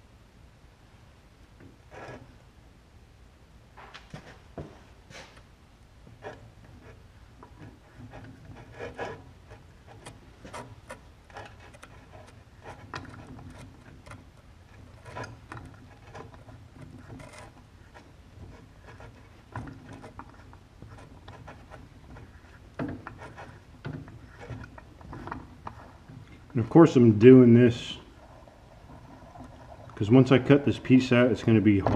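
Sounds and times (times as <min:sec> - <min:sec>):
hand tap clicking and scraping: 0:06.1 - 0:26.6.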